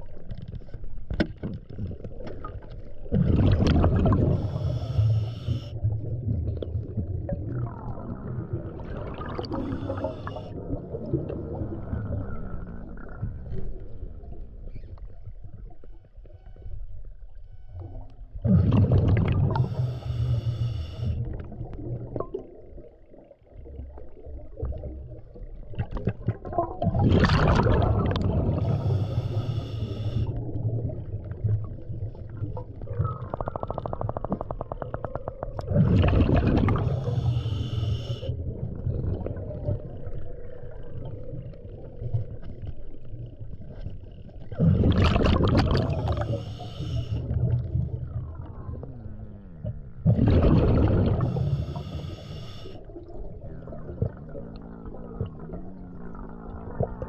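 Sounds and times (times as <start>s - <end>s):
exhaust bubbles rushing: 3.1s - 4.4s, 6.0s - 13.2s, 18.4s - 19.7s, 25.8s - 28.7s, 35.6s - 36.9s, 44.6s - 46.3s, 49.6s - 51.4s
hissing regulator inhale: 4.2s - 5.8s, 9.5s - 10.6s, 19.5s - 21.2s, 28.4s - 30.4s, 36.8s - 38.4s, 46.1s - 47.4s, 51.1s - 52.9s.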